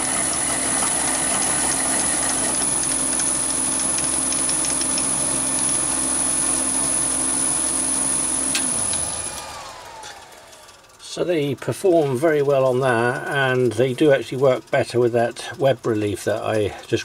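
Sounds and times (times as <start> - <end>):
drill boring into workpiece: 0.0 - 10.2
lathe running with high whine: 0.0 - 17.0.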